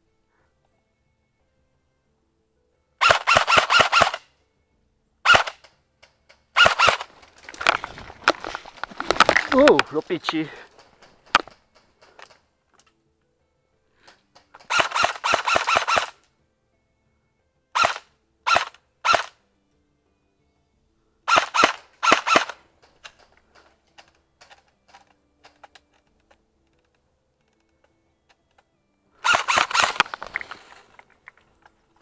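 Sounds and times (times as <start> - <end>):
airsoft gun shots: 3.0 - 4.2, 5.2 - 5.7, 6.6 - 7.8, 14.6 - 16.2, 17.8 - 19.3, 21.3 - 22.6, 29.2 - 30.2.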